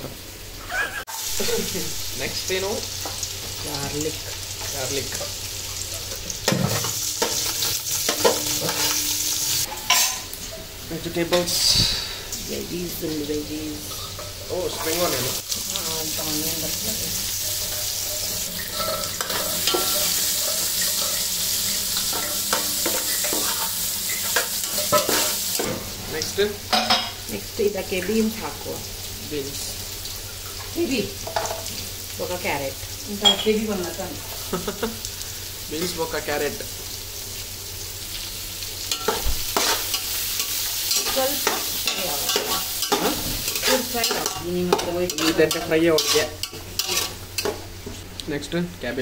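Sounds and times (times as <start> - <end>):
onions sizzling in hot oil: 0.0 - 49.0
spatula scraping and knocking pan: 17.2 - 25.8, 38.9 - 48.0.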